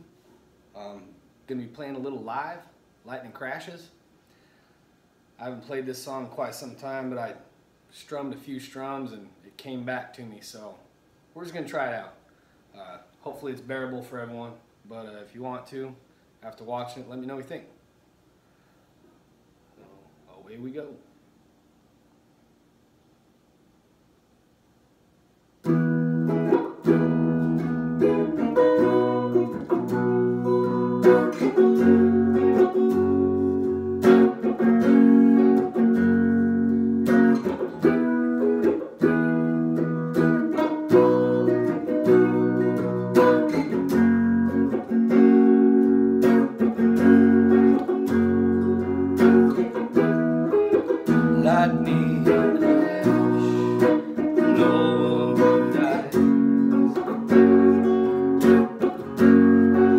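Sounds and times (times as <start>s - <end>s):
electric guitar strumming chords: 25.6s - 59.9s.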